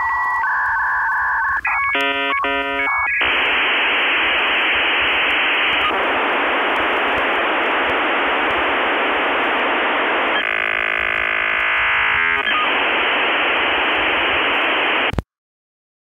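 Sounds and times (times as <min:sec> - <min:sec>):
radio static hiss: 0:00.0 - 0:15.2
buzzy electronic tone: 0:01.7 - 0:04.2, 0:09.9 - 0:12.9.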